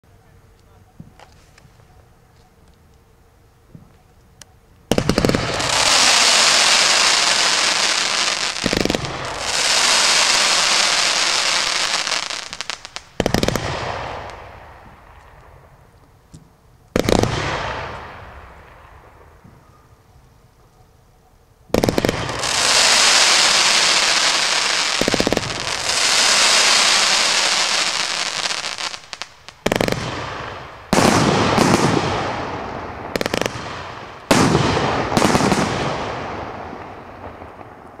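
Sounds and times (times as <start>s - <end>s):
firework bangs: 4.9s - 15.8s, 17.0s - 19.7s, 21.7s - 38.0s
firework crackling: 4.9s - 15.9s, 16.9s - 19.5s, 21.8s - 38.0s.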